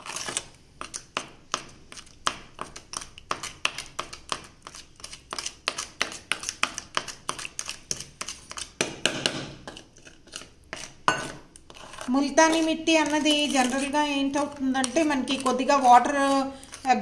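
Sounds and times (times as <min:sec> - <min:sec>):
metal spoon scraping steel bowl: 0:09.6 - 0:17.0
steel tumbler scraping bowl: 0:10.0 - 0:14.0, 0:14.8 - 0:17.0.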